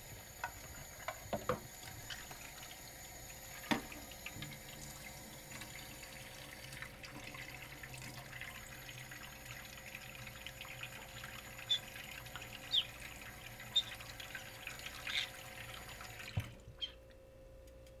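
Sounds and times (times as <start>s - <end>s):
tap water splashing on plate: 3.6s - 4.5s.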